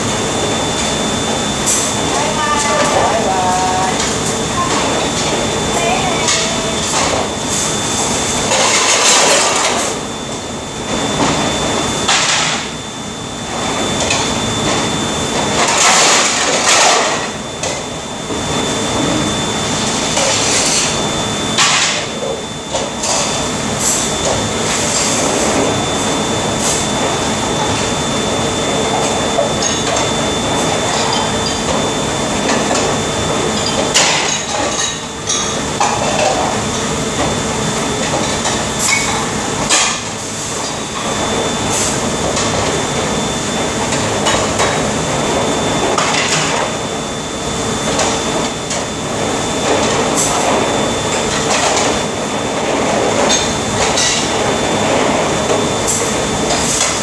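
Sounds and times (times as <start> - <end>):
steady background hum: 0.0 - 57.0.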